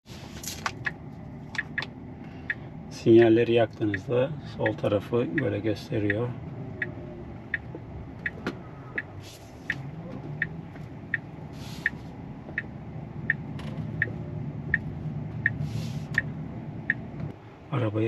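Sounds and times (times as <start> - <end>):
low cabin hum: 0.0 - 18.0
turn signal ticking: 0.7 - 17.4
soft hisses: 9.2 - 9.8.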